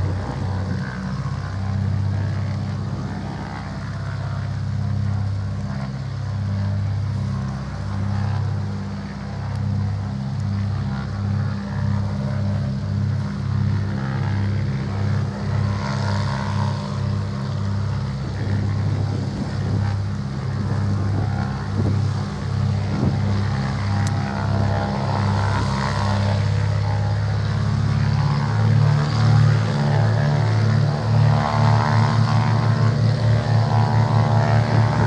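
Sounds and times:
propeller aircraft engines idling: 0.0 - 35.0.

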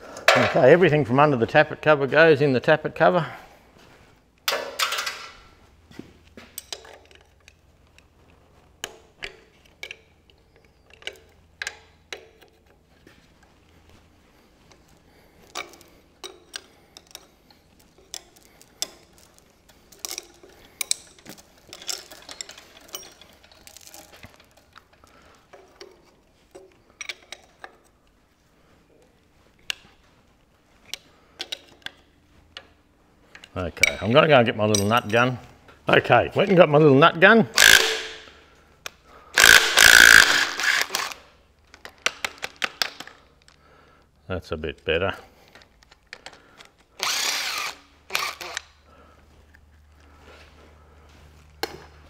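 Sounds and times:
metal clicks of wrench and parts: 4.4 - 5.4, 6.5 - 8.1, 8.8 - 12.8, 14.7 - 27.9, 34.7 - 35.4, 37.6 - 43.6.

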